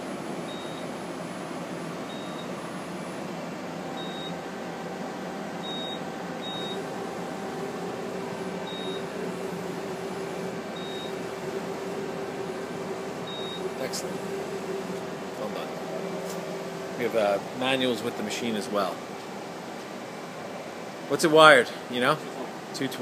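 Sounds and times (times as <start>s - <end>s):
machine hum and hiss: 0.0s - 23.0s
steady tone: 5.6s - 18.5s.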